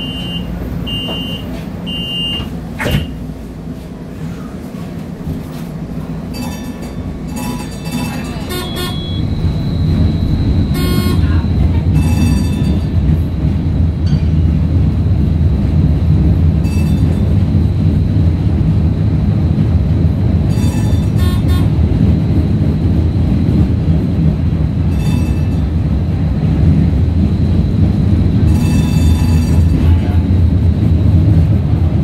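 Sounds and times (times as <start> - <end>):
streetcar wheels rumbling on rail: 0.0 - 32.0
faint high whine: 7.4 - 12.8.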